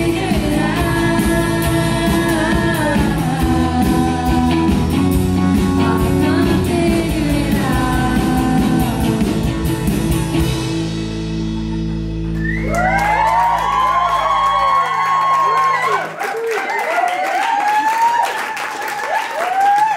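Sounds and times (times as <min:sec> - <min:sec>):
woman singing: 0:00.0 - 0:09.8
live rock band playing: 0:00.0 - 0:15.6
audience cheering: 0:12.3 - 0:19.9.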